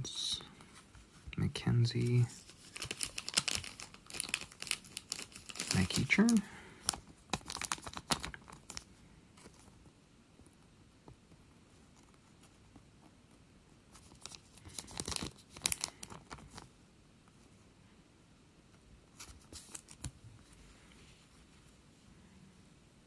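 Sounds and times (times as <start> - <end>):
foil wrapper crinkling and tearing: 2.3 - 9.6, 14.0 - 16.7, 19.2 - 20.1.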